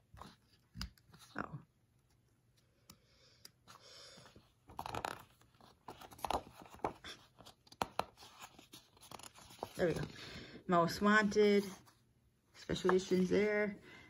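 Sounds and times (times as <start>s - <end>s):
paper crackles and taps: 5.9s - 8.2s.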